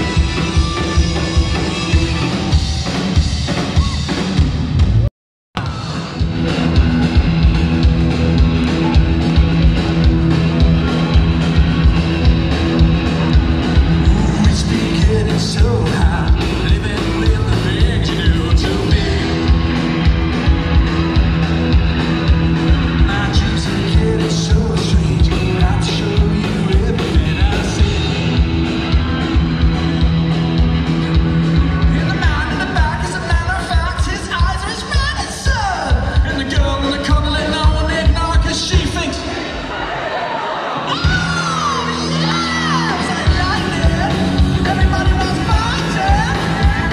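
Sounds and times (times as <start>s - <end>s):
live rock band playing: 0.0s - 39.9s, 40.6s - 46.9s.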